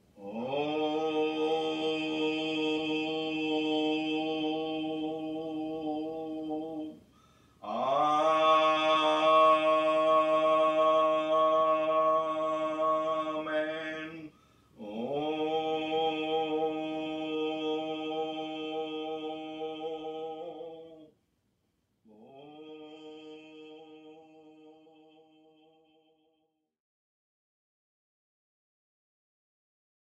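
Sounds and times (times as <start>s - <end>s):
person chanting held notes: 0.2s - 7.0s, 7.6s - 21.1s.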